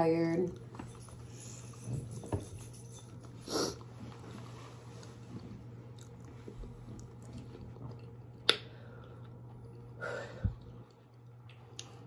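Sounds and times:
steady low hum: 0.0s - 12.0s
close-up chewing and eating: 3.2s - 12.0s.

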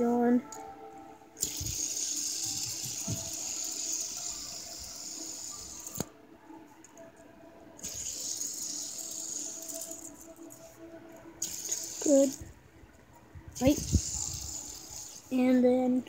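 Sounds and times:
fidget spinner bearing whirring: 1.4s - 6.1s, 7.8s - 10.6s, 11.4s - 12.5s, 13.6s - 15.4s.

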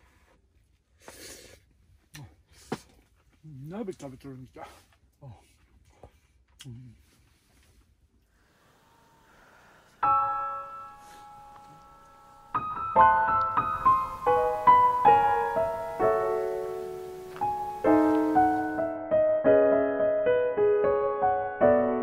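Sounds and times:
soft piano music: 10.0s - 22.0s.

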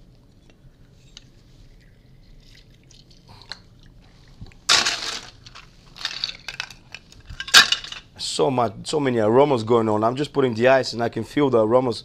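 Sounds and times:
small clinks and handling: 4.7s - 8.1s.

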